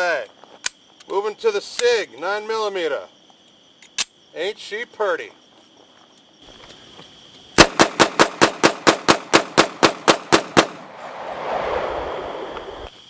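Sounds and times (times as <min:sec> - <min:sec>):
pistol rapid fire: 0:07.6 - 0:10.8.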